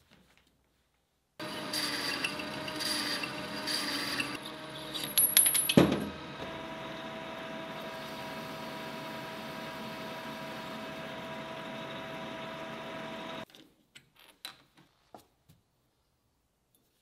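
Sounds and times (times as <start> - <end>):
metal lathe cutting: 1.4 - 5.2, 6.0 - 13.4.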